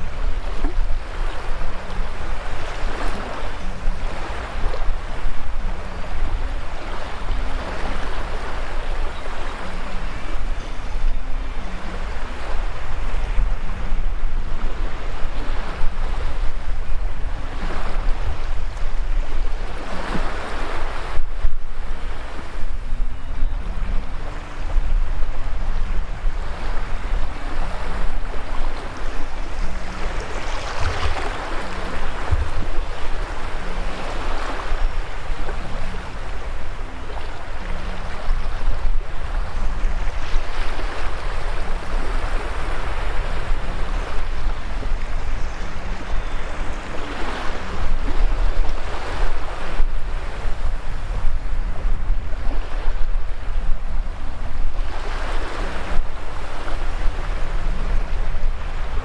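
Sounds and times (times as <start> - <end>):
small waves washing on sand: 0.0 - 10.9, 24.0 - 59.0.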